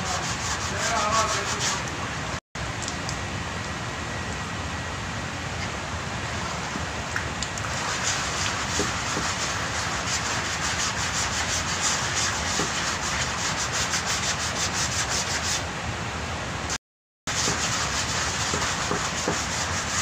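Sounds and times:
sandpaper rasping over filler: 0.0 - 1.9, 7.7 - 15.6, 17.3 - 20.0.

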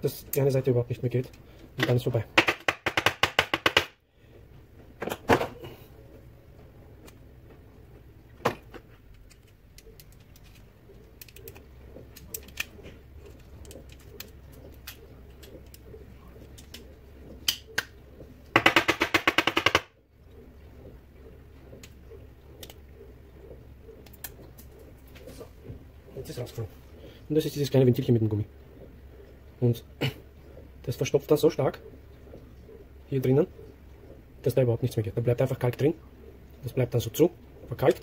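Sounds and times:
plastic parts clicking: 8.4 - 17.9.

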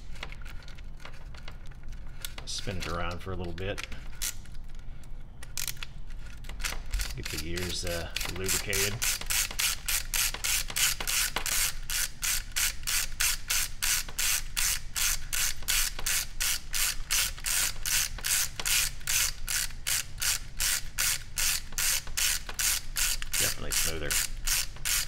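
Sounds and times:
gears clicking rasps: 6.6 - 25.0.

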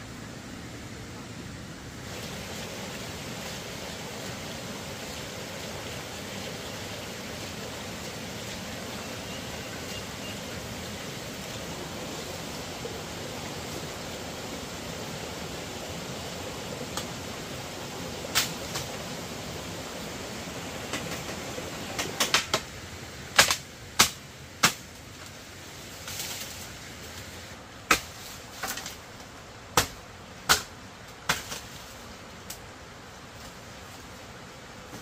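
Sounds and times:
steady background hiss: 0.0 - 35.0
blade chopping bamboo: 23.4 - 24.9, 27.9 - 29.0, 29.7 - 31.7.

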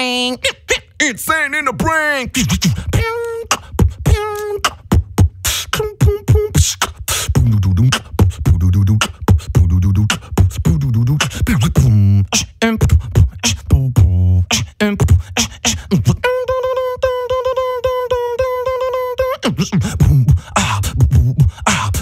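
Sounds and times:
person beatboxing: 1.8 - 22.0
deep buzzing bass tones: 3.7 - 6.7, 7.3 - 16.3.

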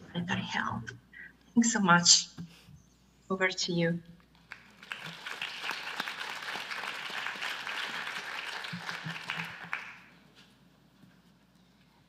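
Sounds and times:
audience applauding: 4.5 - 10.2.

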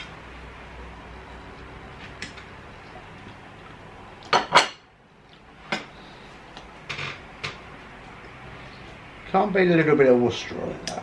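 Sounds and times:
low room hum: 0.0 - 11.0
tableware clinking: 4.3 - 4.9.

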